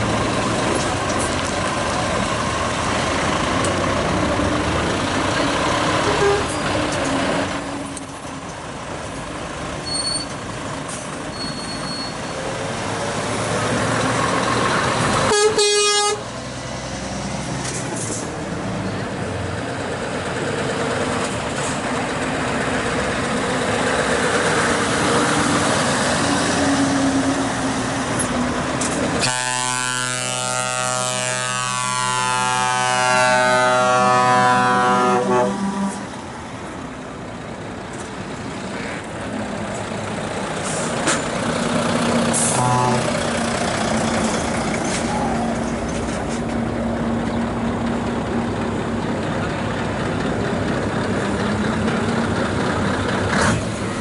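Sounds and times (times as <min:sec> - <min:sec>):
heavy trucks rolling past: 0:00.0 - 0:54.0
air horn blast: 0:15.3 - 0:16.2, 0:29.2 - 0:36.1, 0:42.4 - 0:43.1.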